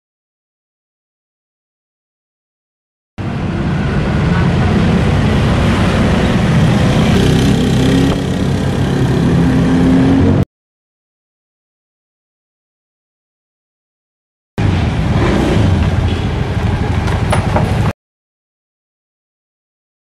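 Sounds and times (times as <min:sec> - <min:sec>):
scooter engine passing: 0:03.2 - 0:10.4, 0:14.6 - 0:17.9
road noise: 0:03.2 - 0:10.5, 0:14.6 - 0:18.0.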